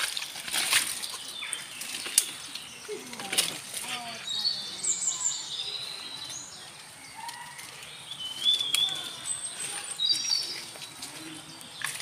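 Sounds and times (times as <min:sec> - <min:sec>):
twigs cracking underfoot: 0:00.0 - 0:04.2, 0:07.0 - 0:12.0
birds whistling: 0:04.0 - 0:12.0
footsteps rustling through undergrowth: 0:05.6 - 0:12.0.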